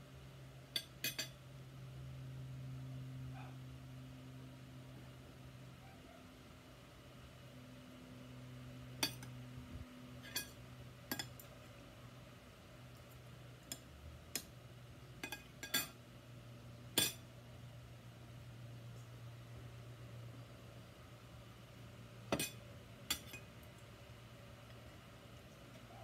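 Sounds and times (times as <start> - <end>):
faint low hum: 0.0 - 26.0
cutlery clinking on dishes: 0.8 - 1.4, 9.0 - 9.3, 10.2 - 11.5, 15.2 - 16.0, 17.0 - 17.2, 22.3 - 23.5.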